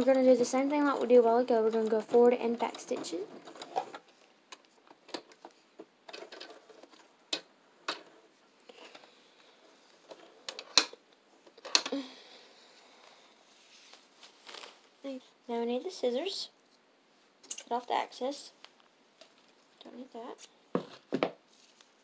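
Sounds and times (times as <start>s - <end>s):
faint rustling: 12.4s - 15.4s, 18.6s - 22.0s.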